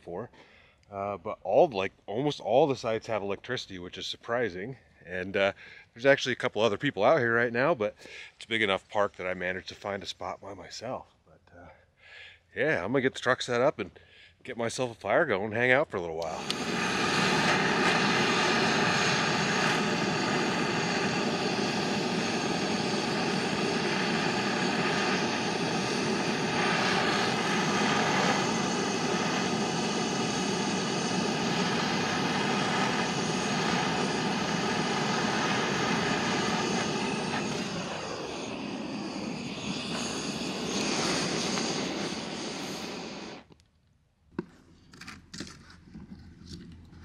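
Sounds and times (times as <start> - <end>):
propeller airplane droning overhead: 16.3 - 43.4.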